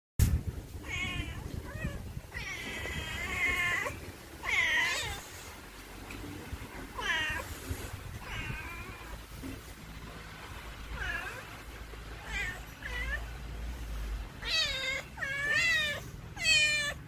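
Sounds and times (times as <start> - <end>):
cat meowing: 0.8 - 5.5, 6.9 - 9.2, 10.9 - 13.4, 14.4 - 17.0.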